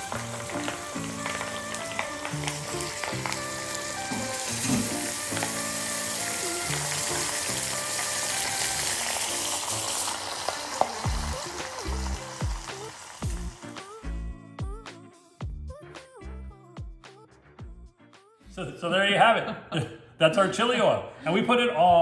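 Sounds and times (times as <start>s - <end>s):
hot oil sizzling and bubbling: 0.0s - 14.2s
background music with bass line: 11.0s - 18.7s.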